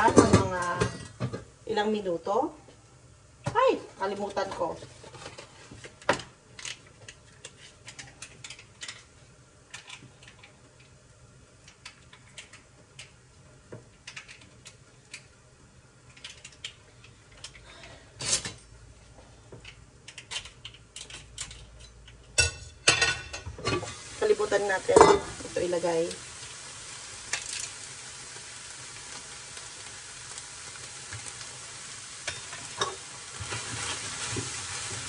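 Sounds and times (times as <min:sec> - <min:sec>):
food packaging crinkling: 0:26.4 - 0:31.7.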